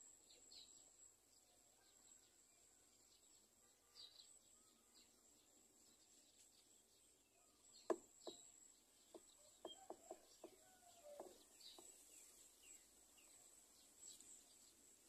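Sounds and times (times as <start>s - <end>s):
distant birds chirping: 7.4s - 14.4s
soft sharp ticks and taps: 9.1s - 12.0s.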